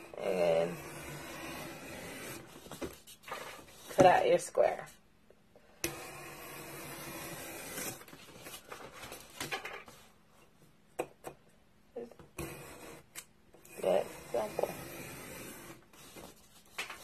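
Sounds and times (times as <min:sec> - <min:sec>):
craft knife cutting foam board: 0:00.1 - 0:03.0, 0:05.8 - 0:08.2, 0:12.4 - 0:17.0.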